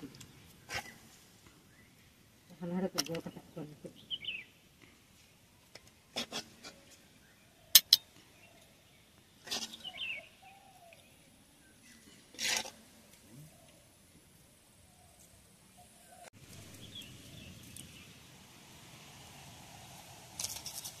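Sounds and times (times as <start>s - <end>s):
faint bird chirps: 6.7s - 12.2s.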